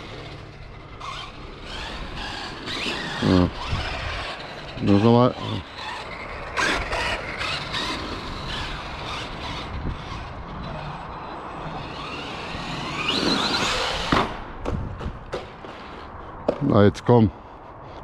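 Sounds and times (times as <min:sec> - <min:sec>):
toy truck motor whining: 0:00.0 - 0:14.4
tyre noise on dirt: 0:11.7 - 0:16.9.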